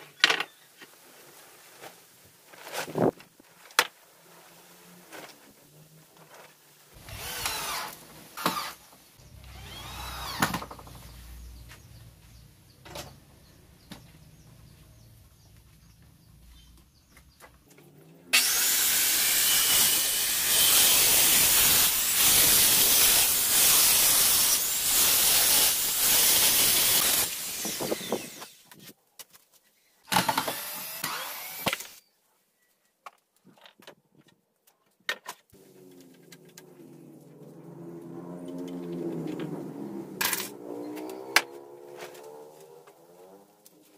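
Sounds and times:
cordless drill running: 0:07.0 - 0:10.8, 0:18.4 - 0:28.6, 0:30.1 - 0:32.0
circular saw cutting wood: 0:07.0 - 0:11.2, 0:18.3 - 0:28.8, 0:30.2 - 0:32.0.

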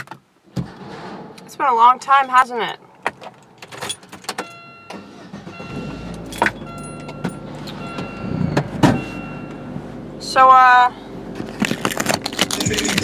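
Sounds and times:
car engine idling: 0:00.5 - 0:13.0
car keys jingling: 0:02.8 - 0:09.6, 0:11.4 - 0:13.0
high electronic dashboard chime: 0:04.3 - 0:09.8.

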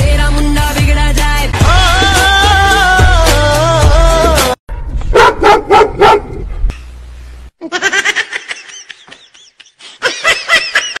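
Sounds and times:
dog barking and yipping: 0:05.1 - 0:06.5.

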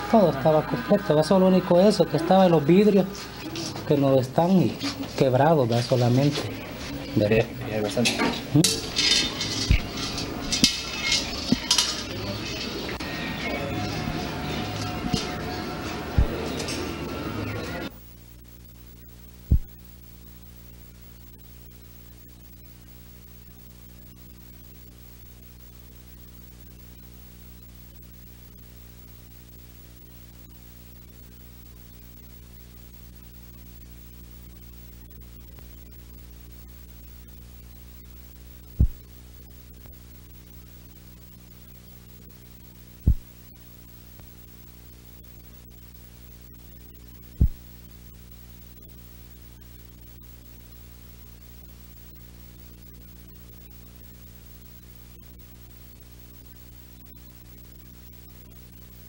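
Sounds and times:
low electrical hum: 0:00.0 - 0:59.0
sharp low thumps: 0:16.2 - 0:16.4, 0:19.5 - 0:19.8, 0:38.8 - 0:39.1, 0:43.1 - 0:43.3, 0:47.4 - 0:47.6.

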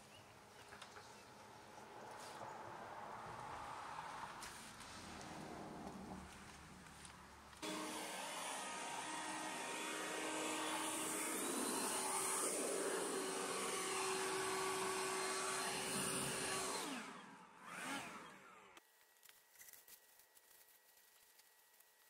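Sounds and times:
leaf blower running: 0:07.6 - 0:18.8.

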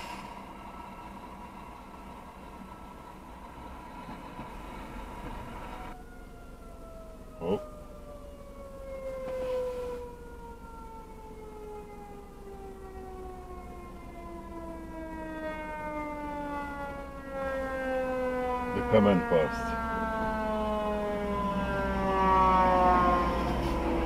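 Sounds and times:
fire truck siren winding down: 0:04.8 - 0:24.0
sharp rising siren whoop: 0:05.7 - 0:24.0.

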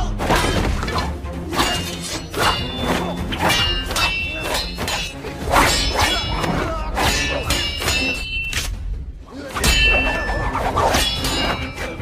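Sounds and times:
film score music: 0:00.0 - 0:12.0
weapon strikes with metallic ring: 0:01.6 - 0:06.3.

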